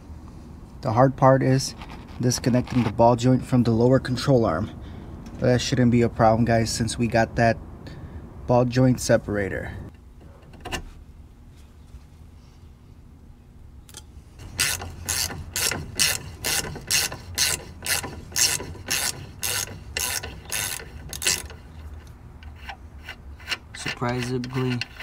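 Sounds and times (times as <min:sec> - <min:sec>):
ratchet wrench ratcheting: 0:13.9 - 0:25.0.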